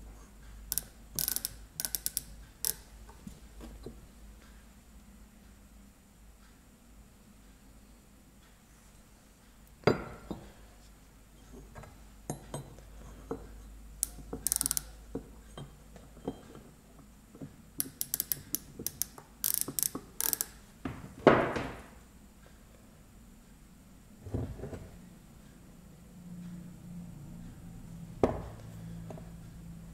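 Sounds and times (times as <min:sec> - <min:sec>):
micrometer ratchet clicking: 0:00.7 - 0:02.9, 0:14.0 - 0:15.0, 0:17.8 - 0:20.6.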